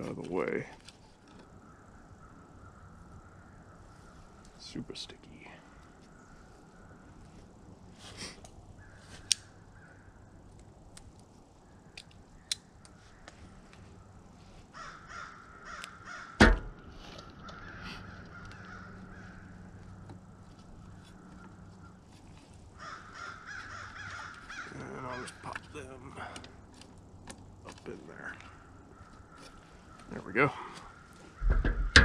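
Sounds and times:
crows cawing: 0:01.3 - 0:04.5, 0:05.6 - 0:07.6, 0:08.8 - 0:10.4, 0:11.7 - 0:26.7, 0:28.1 - 0:32.0
loud knock: 0:16.4 - 0:16.8.

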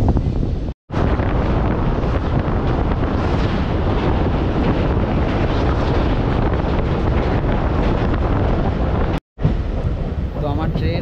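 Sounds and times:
wind buffeting microphone: 0:00.0 - 0:11.0
train running over bridge: 0:01.0 - 0:11.0.

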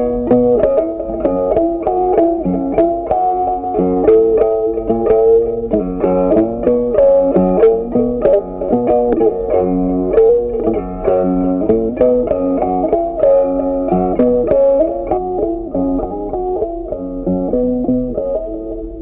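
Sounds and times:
low bass notes: 0:00.0 - 0:19.0
plucked guitar melody: 0:00.0 - 0:19.0.

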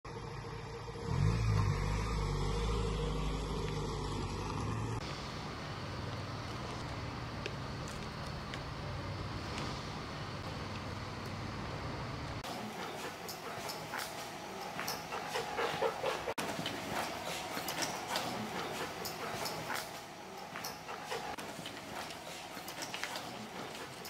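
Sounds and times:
van engine running: 0:00.1 - 0:12.5.

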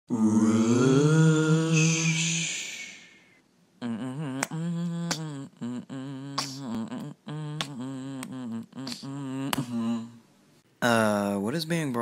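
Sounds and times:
person humming a tune: 0:00.1 - 0:03.0, 0:03.8 - 0:10.2.

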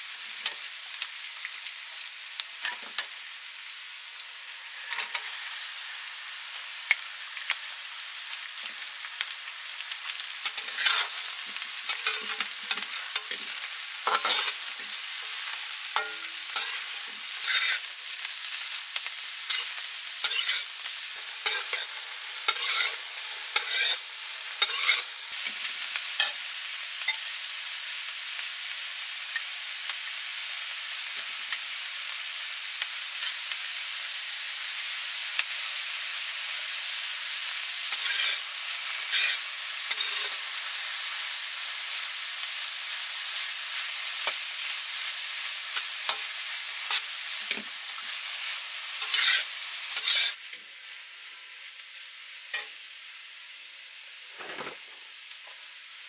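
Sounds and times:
vegetables sizzling in hot oil: 0:00.0 - 0:56.0
metal spatula scraping wok: 0:10.4 - 0:11.3, 0:11.9 - 0:14.9, 0:15.9 - 0:17.9, 0:19.5 - 0:20.7, 0:21.4 - 0:24.0, 0:24.6 - 0:25.4, 0:37.9 - 0:40.4, 0:49.0 - 0:50.4.

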